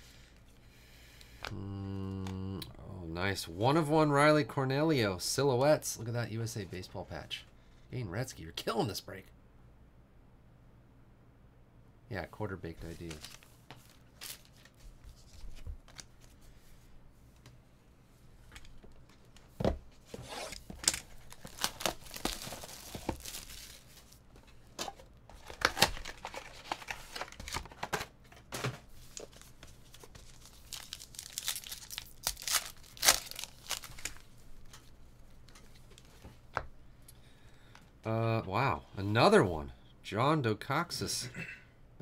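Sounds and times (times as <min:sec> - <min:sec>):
card wrappers ripping and crinkling: 0:12.8 - 0:16.2, 0:20.1 - 0:24.2, 0:24.8 - 0:28.1, 0:29.0 - 0:34.8.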